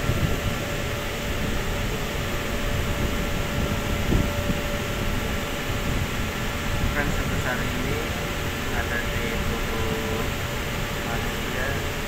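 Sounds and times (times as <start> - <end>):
machinery drone: 0.0 - 12.0.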